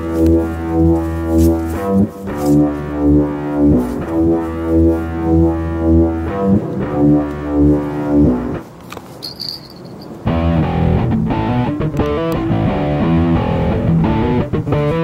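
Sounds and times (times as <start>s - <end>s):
pulsing low droning music: 0.0s - 8.6s.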